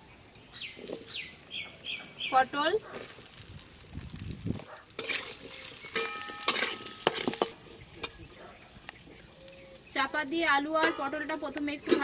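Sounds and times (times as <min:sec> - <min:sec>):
vegetables sizzling in oil: 0:00.0 - 0:12.0
metal spatula scraping pan: 0:05.0 - 0:08.2.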